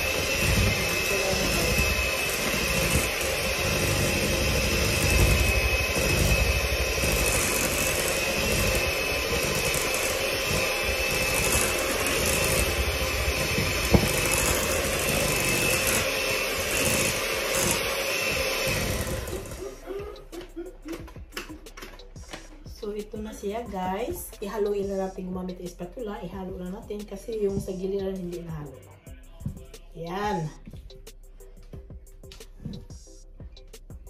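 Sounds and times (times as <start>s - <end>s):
electric hand mixer whining: 0.0s - 21.3s.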